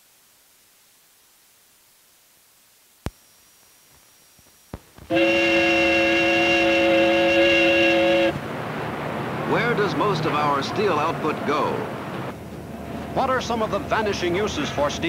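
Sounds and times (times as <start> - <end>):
faint soundtrack hiss: 0.0 - 15.0
loud steady held chord: 5.1 - 8.4.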